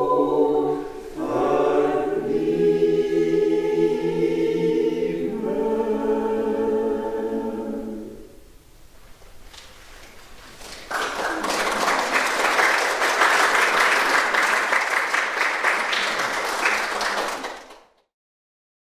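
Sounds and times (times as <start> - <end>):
audience applause: 10.6 - 18.0.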